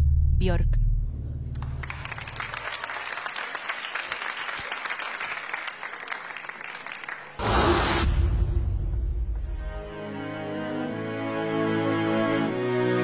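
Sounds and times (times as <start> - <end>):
audience applauding and cheering: 1.5 - 8.0.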